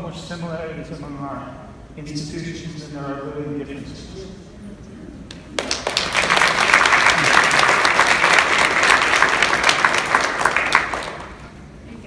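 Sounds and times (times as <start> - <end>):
people clapping: 5.3 - 11.6.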